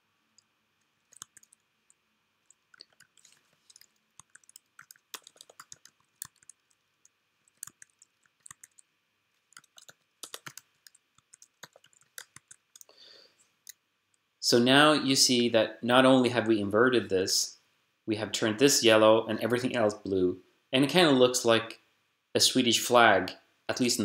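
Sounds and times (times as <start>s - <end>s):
computer keyboard and mouse clicking: 0.4s - 8.9s, 9.5s - 12.9s.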